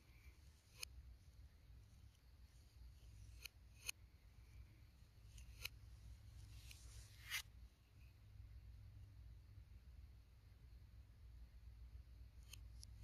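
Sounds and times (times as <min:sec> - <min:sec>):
palette knife tapping and scraping: 0:00.5 - 0:01.0, 0:02.0 - 0:04.0, 0:05.2 - 0:07.4.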